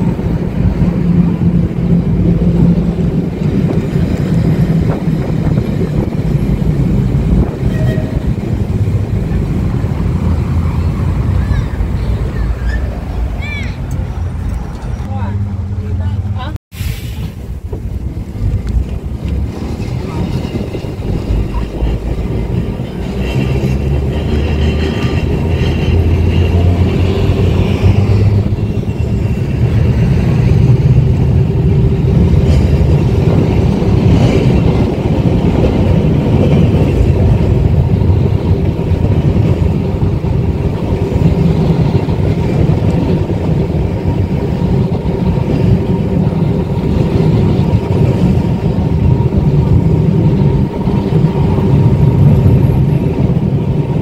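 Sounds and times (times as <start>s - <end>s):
tram rumbling on rails: 0.0s - 54.0s.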